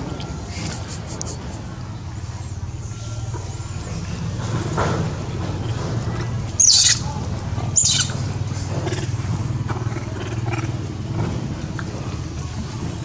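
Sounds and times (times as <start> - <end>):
low motor hum: 0.0 - 13.0
monkeys screaming: 6.5 - 10.8.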